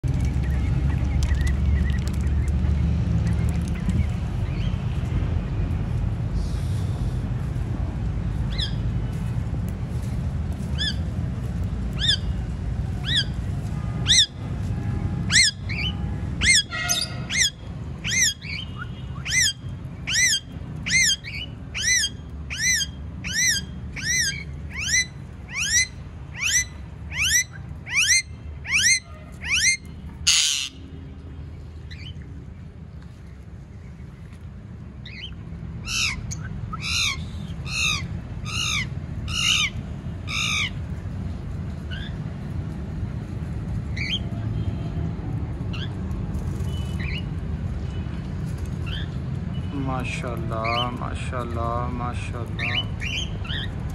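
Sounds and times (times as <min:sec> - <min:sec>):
parakeets squawking: 0:08.5 - 0:08.8, 0:11.9 - 0:12.4, 0:13.0 - 0:13.4, 0:14.0 - 0:14.4, 0:15.3 - 0:30.8, 0:35.0 - 0:40.9, 0:41.9 - 0:42.2, 0:43.9 - 0:44.3, 0:48.8 - 0:49.2, 0:50.0 - 0:53.8.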